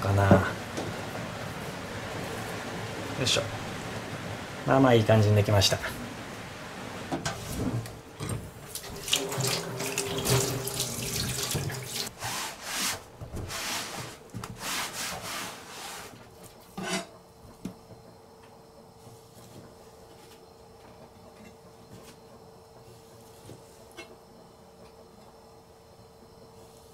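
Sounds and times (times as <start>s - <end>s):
tap water splashing into sink: 8.7s - 12.1s.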